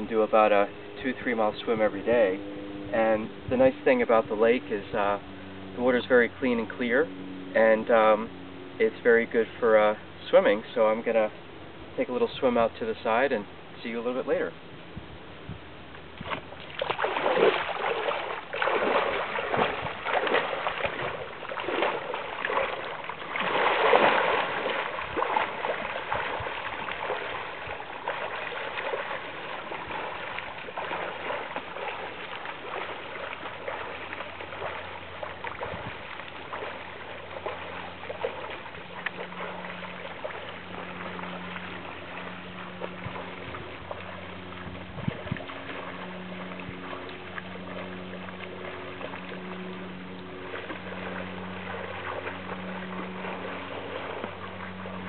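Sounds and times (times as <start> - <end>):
water splashing and sloshing: 0.0 - 55.0
swimming stroke splashes: 16.2 - 55.0.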